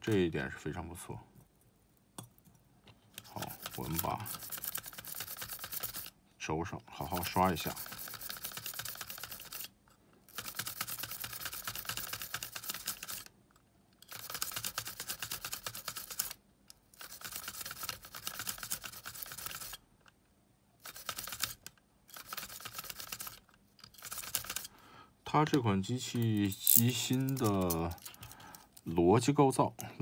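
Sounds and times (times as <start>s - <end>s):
brush scrubbing metal shaft: 3.2s - 6.1s, 7.0s - 9.7s.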